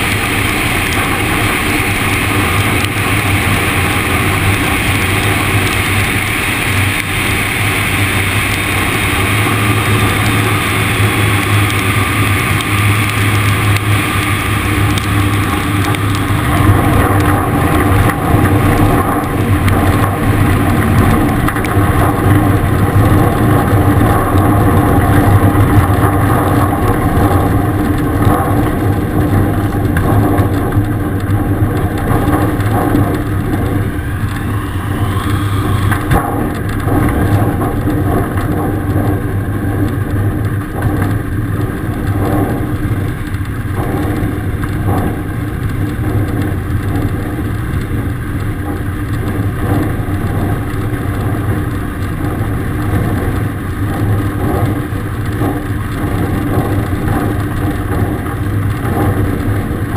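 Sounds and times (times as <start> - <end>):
light aircraft engine drone: 0.0 - 59.9
air rushing over airframe: 33.4 - 36.4.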